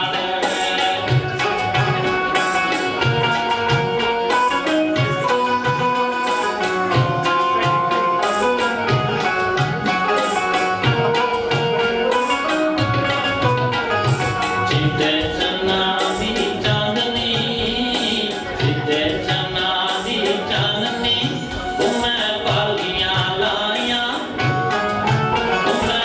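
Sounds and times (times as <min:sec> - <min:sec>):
hand drum rhythm: 0:00.0 - 0:26.0
brighter higher melodic part: 0:01.0 - 0:15.6, 0:24.4 - 0:26.0.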